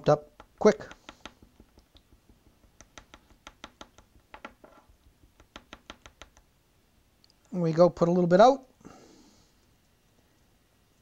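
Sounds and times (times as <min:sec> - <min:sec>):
faint clicks of tool stirring paint: 0:00.0 - 0:06.6, 0:07.2 - 0:07.6.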